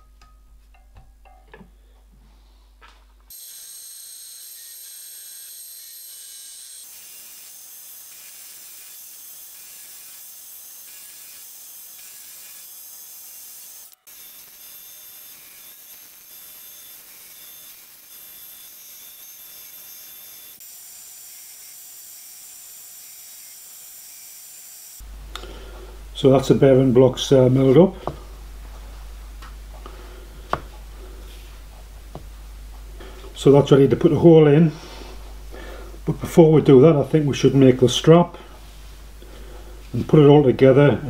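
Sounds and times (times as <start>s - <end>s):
milling machine cutting metal: 3.3s - 23.8s.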